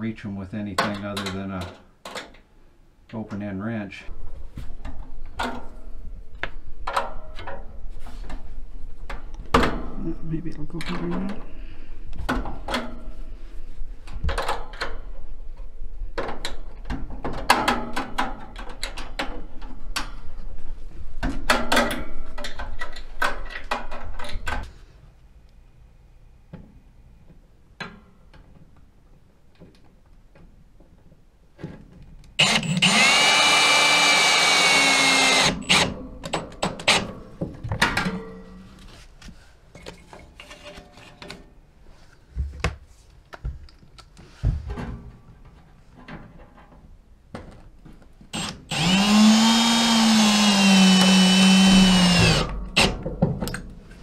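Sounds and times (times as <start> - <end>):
cordless drill whirring: 32.4 - 35.9, 48.3 - 52.9.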